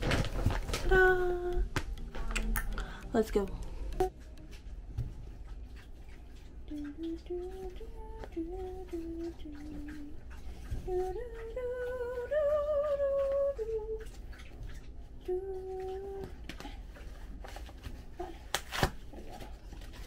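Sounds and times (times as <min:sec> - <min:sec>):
crinkling of packaging: 0:00.0 - 0:00.9
woman humming: 0:00.7 - 0:04.1, 0:15.2 - 0:16.4.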